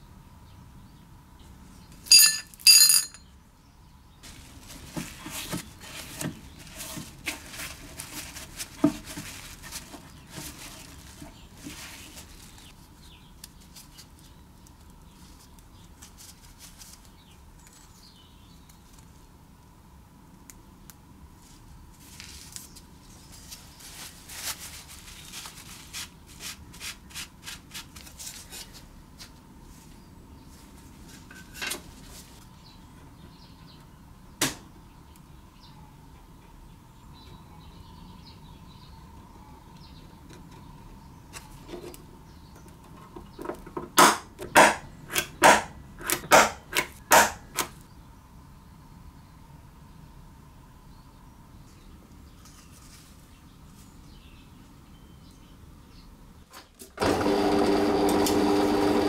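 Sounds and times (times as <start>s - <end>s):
metal parts clicking and clinking: 2.1s - 3.3s.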